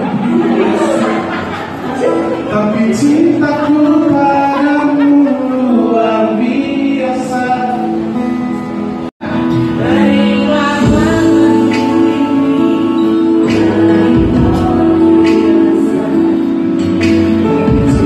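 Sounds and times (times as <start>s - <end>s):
man and woman singing duet: 2.2s - 8.3s, 9.2s - 18.0s
man singing into microphone: 2.5s - 8.4s, 9.2s - 18.0s
strummed acoustic guitar: 6.6s - 18.0s.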